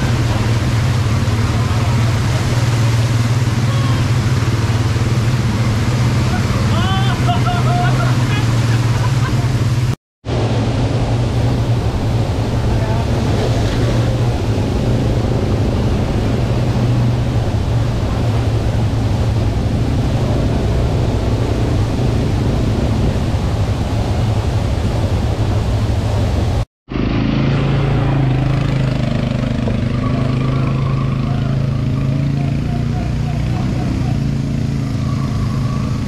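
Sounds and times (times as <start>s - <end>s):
waterfall rushing: 0.0s - 26.7s
quad bike engines: 0.0s - 36.0s.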